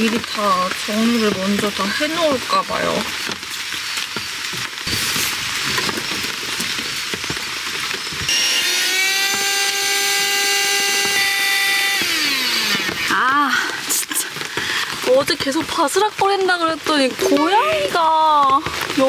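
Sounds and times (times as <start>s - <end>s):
electric air pump whine: 4.0s - 13.3s.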